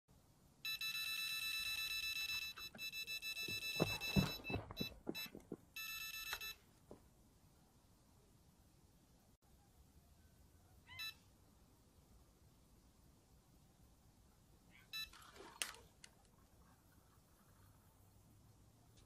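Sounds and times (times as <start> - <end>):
electronic bite alarm beeping: 0.7 - 6.6
knocks and thumps: 3.5 - 5.7.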